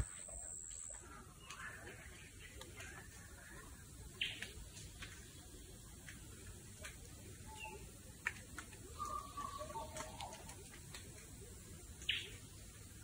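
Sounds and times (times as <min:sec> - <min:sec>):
birds calling: 0:01.0 - 0:05.8, 0:08.8 - 0:10.7, 0:12.0 - 0:12.6.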